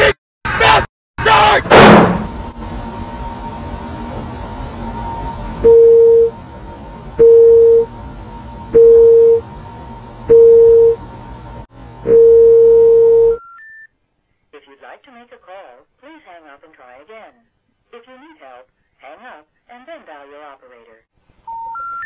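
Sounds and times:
rising phone intercept tones: 5.6 - 6.4, 7.2 - 7.9, 8.7 - 9.5, 10.3 - 11.0, 12.1 - 13.9, 21.5 - 22.0
telephone line beeps: 5.6 - 6.4, 7.2 - 7.9, 8.8 - 9.4, 10.3 - 11.0, 12.1 - 13.9, 21.5 - 22.0.

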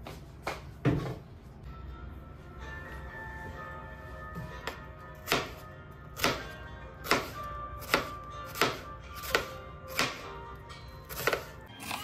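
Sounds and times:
knife chopping on wooden board: 7.0 - 10.2, 11.1 - 11.5.

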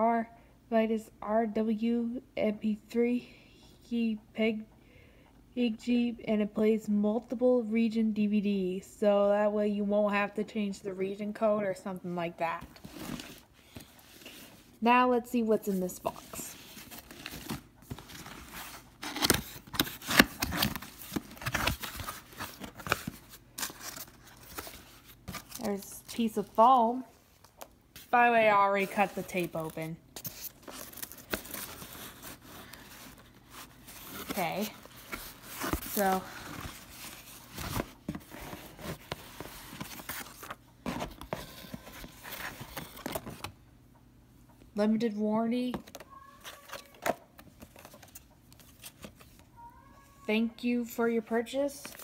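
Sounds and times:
cardboard and foam rustling: 12.4 - 14.8, 15.7 - 43.5.

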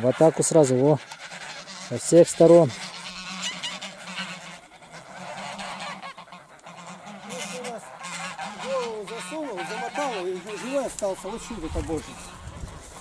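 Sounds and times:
geese honking: 0.0 - 13.0.

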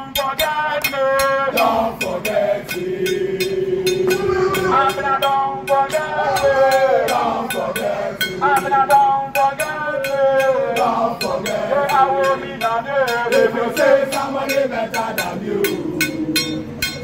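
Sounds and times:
men singing chant-like song: 0.0 - 17.0
music with steady beat: 0.0 - 17.0.

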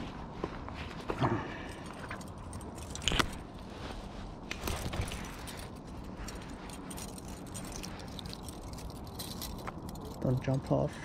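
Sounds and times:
low background noise: 0.0 - 11.0
metal chain jangling and clicking: 1.6 - 3.6, 4.5 - 11.0.

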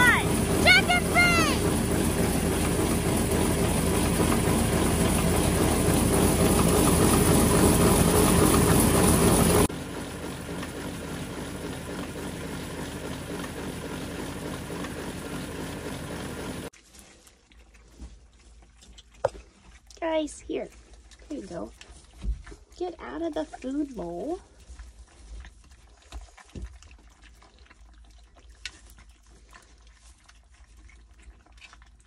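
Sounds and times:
engine running: 0.0 - 16.7.

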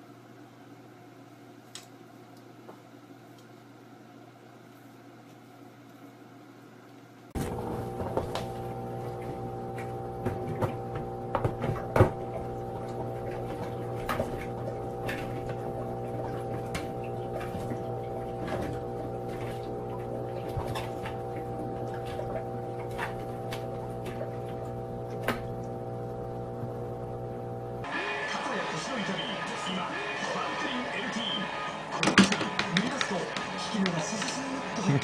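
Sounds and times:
humidifier fan humming: 0.0 - 35.0
water dripping: 7.8 - 27.8.

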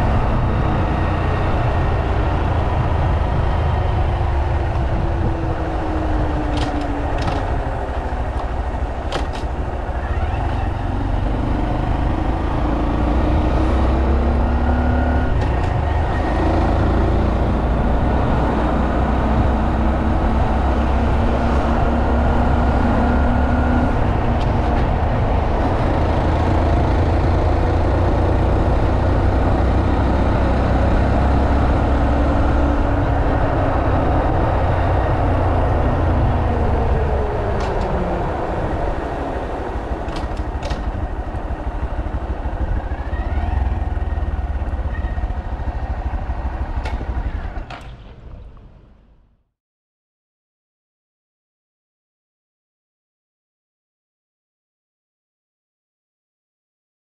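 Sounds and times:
motorcycle engine revving: 9.2 - 48.6.

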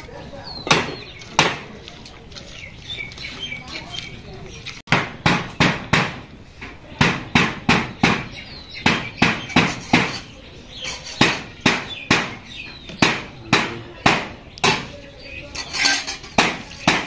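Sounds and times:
sharp knocks: 4.9 - 6.3, 7.0 - 10.3, 11.2 - 14.9, 16.2 - 17.0.

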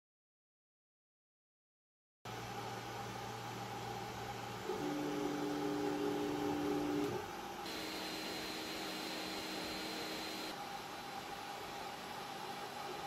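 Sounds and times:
printer fans humming: 2.5 - 11.9
stepper motors whining: 6.6 - 10.6.

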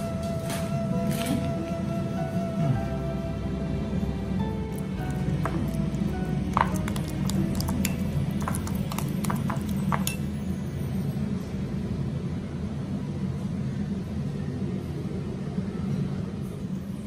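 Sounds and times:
steady low hum: 0.0 - 17.0
metal spoon clinking glass bowl: 5.0 - 10.4.

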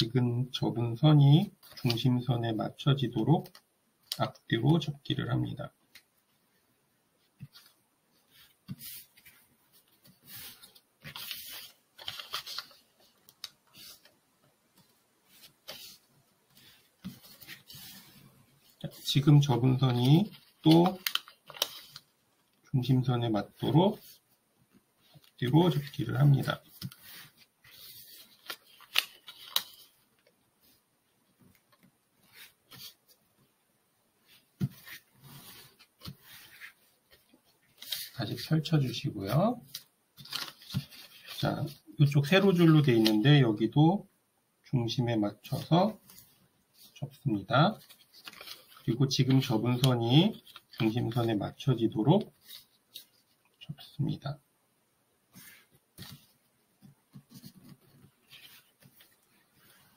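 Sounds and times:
paper rustling and crinkling: 7.2 - 23.0, 25.0 - 33.4, 34.2 - 43.4, 45.4 - 54.0, 55.3 - 59.9.

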